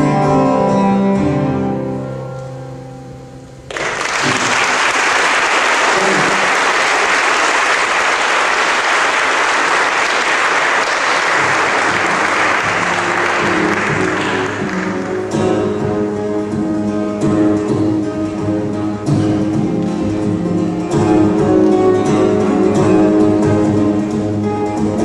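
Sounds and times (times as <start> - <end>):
audience applauding: 3.7 - 15.6
acoustic guitar notes: 5.9 - 6.8, 10.5 - 25.0
guitar chord: 11.4 - 25.0.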